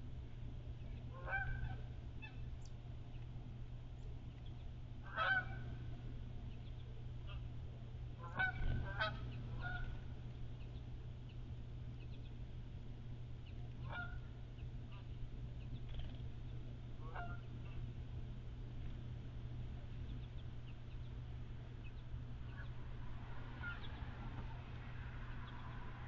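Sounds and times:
steady low hum: 0:00.0 - 0:26.0
honking bird calls: 0:01.1 - 0:02.5, 0:05.0 - 0:06.0, 0:08.2 - 0:10.8, 0:13.8 - 0:15.2, 0:17.0 - 0:17.9, 0:23.5 - 0:24.2.

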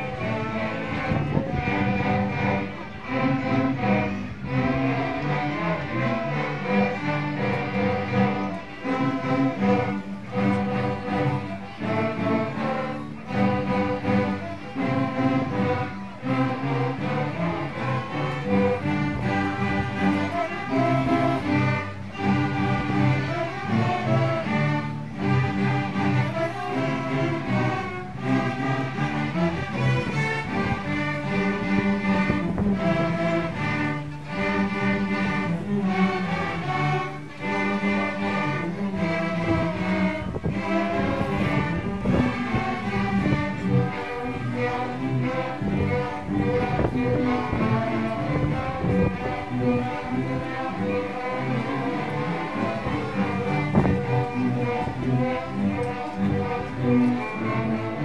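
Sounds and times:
string orchestra playing: 0:00.0 - 0:58.0.

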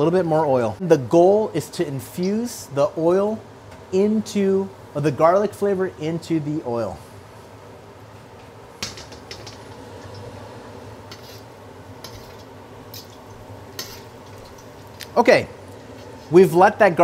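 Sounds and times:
steady low hum: 0:00.0 - 0:17.0
garlic sizzling in oil: 0:09.5 - 0:16.4
metal ladle scraping wok: 0:11.1 - 0:15.0.

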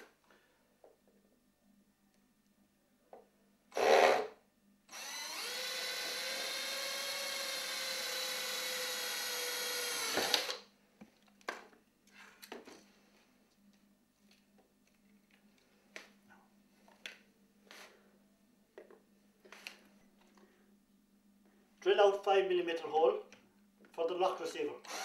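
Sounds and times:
power drill whining: 0:03.7 - 0:04.3, 0:04.9 - 0:10.6.

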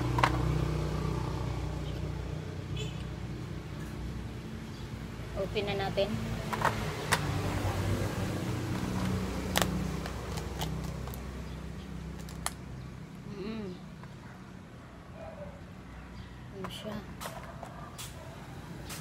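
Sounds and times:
crab shell cracking: 0:08.8 - 0:11.3, 0:12.1 - 0:12.7.

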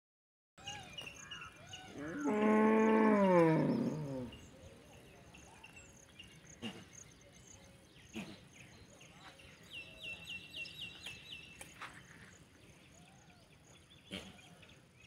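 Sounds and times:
faint chirping calls: 0:00.6 - 0:15.0
cow mooing: 0:02.0 - 0:04.4.

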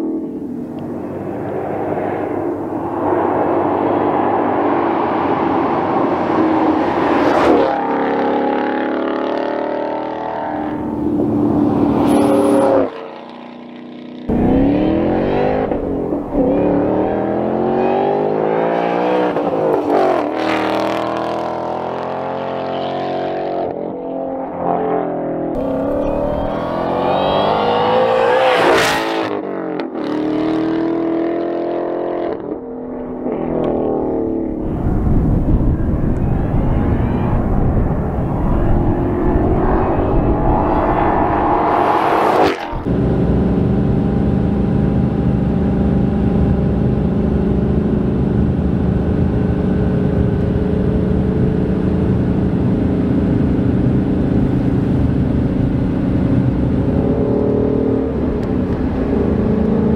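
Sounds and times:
car engine accelerating through gears: 0:14.3 - 0:23.7, 0:25.5 - 0:32.5, 0:37.1 - 0:53.2.

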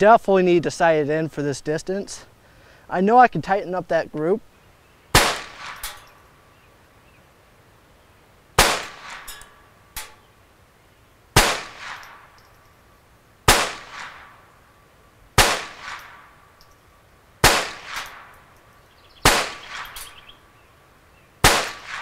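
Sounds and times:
pistol shots with echo: 0:05.2 - 0:06.0, 0:08.6 - 0:09.3, 0:11.4 - 0:12.4, 0:13.5 - 0:14.4, 0:15.4 - 0:16.4, 0:17.4 - 0:18.4, 0:19.2 - 0:20.2, 0:21.4 - 0:22.0.

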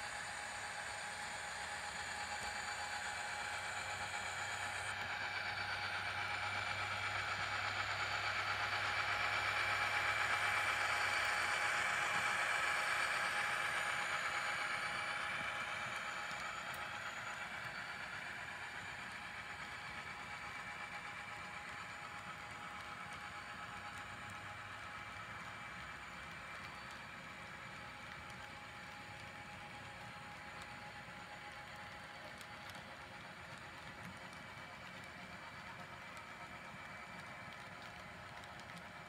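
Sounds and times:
model train wheels clattering on rails: 0:00.0 - 0:39.0.

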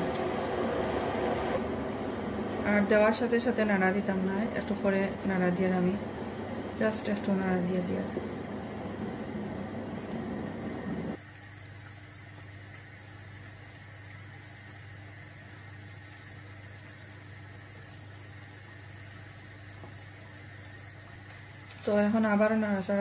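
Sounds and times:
low steady hum: 0:00.0 - 0:11.2
batter deep-frying in oil: 0:01.6 - 0:23.0.

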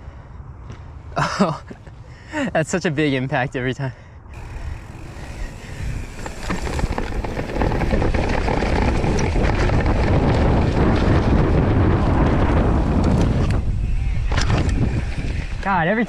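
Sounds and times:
wind on microphone: 0:04.3 - 0:15.8
tyres rumbling on dirt trail: 0:04.3 - 0:16.0
bike knocks and rattles: 0:04.4 - 0:13.4.

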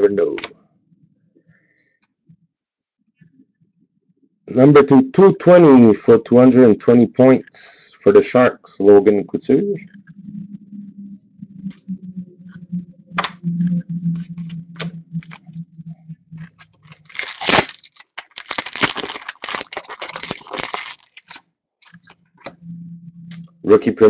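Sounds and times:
low steady hum: 0:04.5 - 0:24.0
wrapper crinkling and tearing: 0:16.9 - 0:22.0.

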